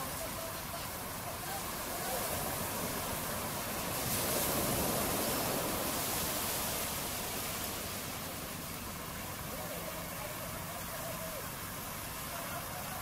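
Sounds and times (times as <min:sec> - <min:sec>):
surf washing in shallows: 0:00.0 - 0:13.0.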